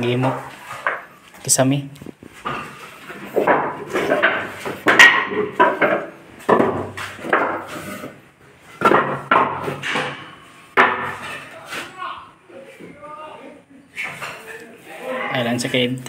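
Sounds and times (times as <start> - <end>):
wooden planks knocking: 2.4 - 7.8, 8.8 - 11.4.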